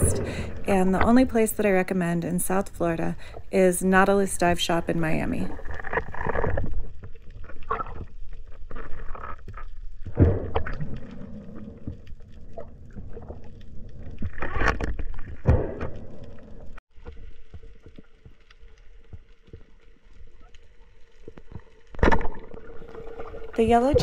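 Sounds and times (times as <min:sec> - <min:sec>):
muffled underwater rumble: 0:00.0 - 0:03.4
underwater ambience: 0:00.0 - 0:24.0
knocks and scrapes underwater: 0:05.5 - 0:20.6, 0:21.2 - 0:24.0.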